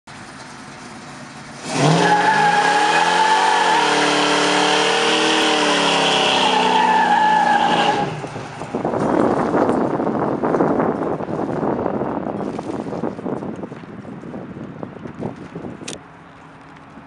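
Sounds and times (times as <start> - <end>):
car engine revving: 0.9 - 8.7
tyres screeching: 1.7 - 8.3.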